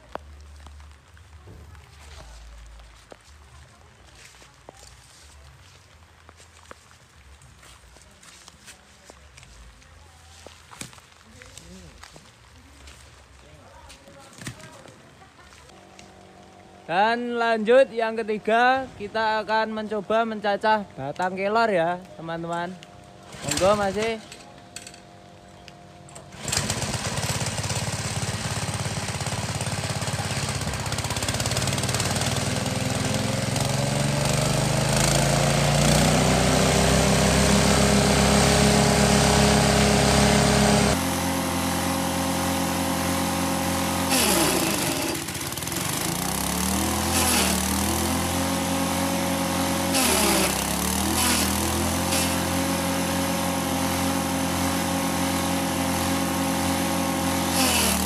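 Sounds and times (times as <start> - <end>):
small engine running: 23.2 - 24.4, 26.2 - 58.0.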